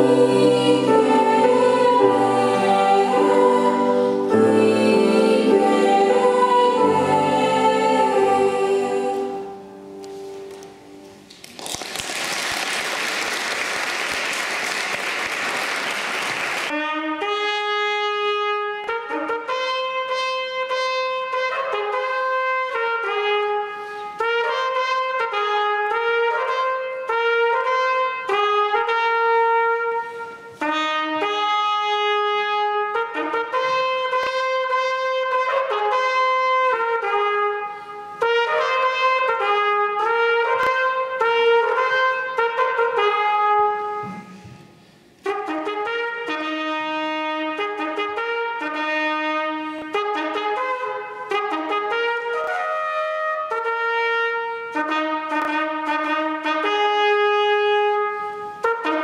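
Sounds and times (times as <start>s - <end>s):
solo trumpet melody: 0.0s - 11.2s, 16.7s - 59.0s
applause: 11.3s - 16.7s.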